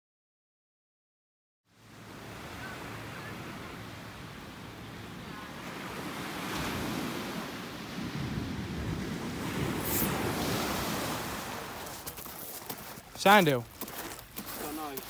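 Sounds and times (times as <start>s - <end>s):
surf washing on beach: 1.7s - 15.0s
wind rushing over microphone: 5.7s - 12.0s.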